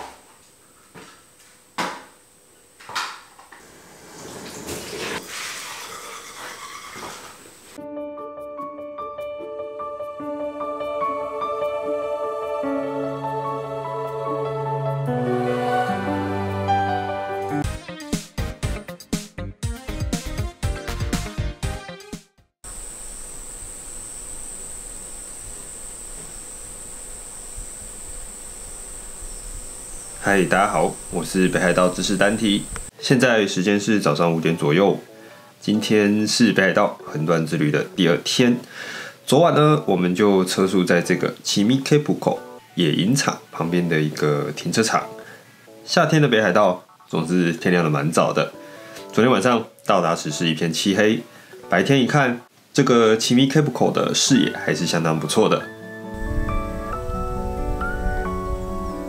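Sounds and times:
tap running water: 2.8 - 7.6
insects chirring: 22.6 - 32.9.

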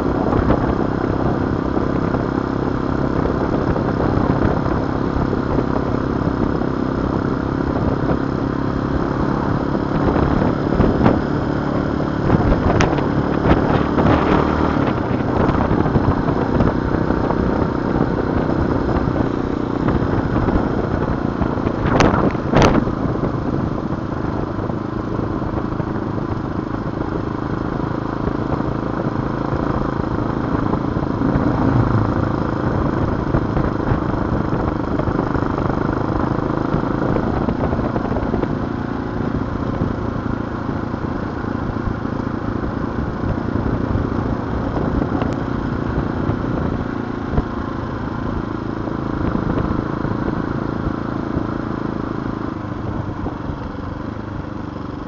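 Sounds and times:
wind rush on microphone: 0.0 - 54.7
dirt bike engine running: 28.9 - 35.0.

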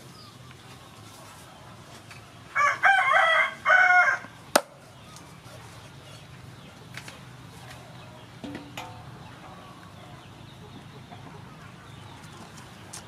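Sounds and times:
rooster crowing: 2.5 - 4.3.

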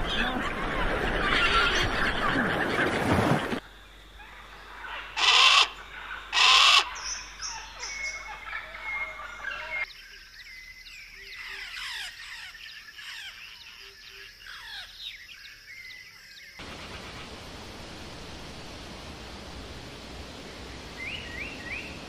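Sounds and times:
birds chirping: 0.0 - 22.0
bird harsh call: 5.0 - 9.9
chorus of birds whistling: 5.0 - 10.0
steady hiss: 16.6 - 22.0.

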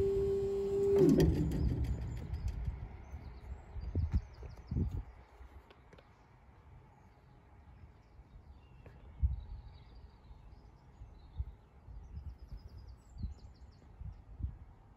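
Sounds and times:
wind buffeting microphone: 0.0 - 5.2, 9.1 - 9.7.

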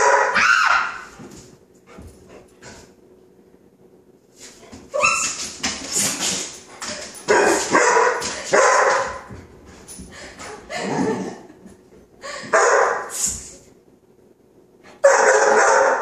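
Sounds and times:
puppy barking: 0.0 - 1.1, 7.3 - 9.3, 12.5 - 13.1, 15.0 - 16.0.

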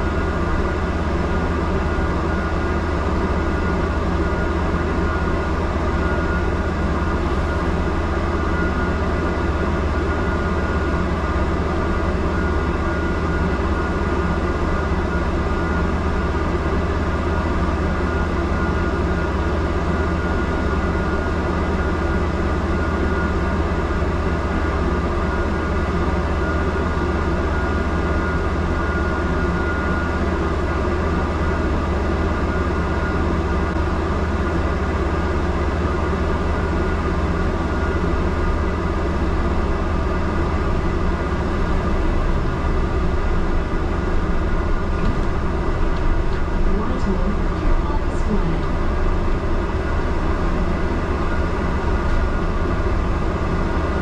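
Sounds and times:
bus engine rumble and hum: 0.0 - 54.0.

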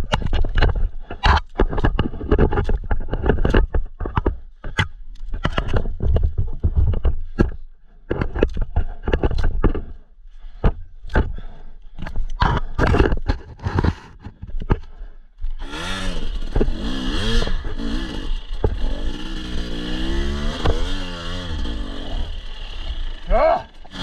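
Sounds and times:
stick knocking and scraping: 0.0 - 15.0, 18.5 - 22.1.

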